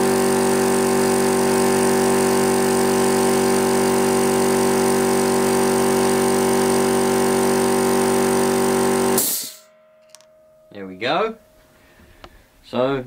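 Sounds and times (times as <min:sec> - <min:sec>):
air compressor running: 0:00.0 - 0:09.7.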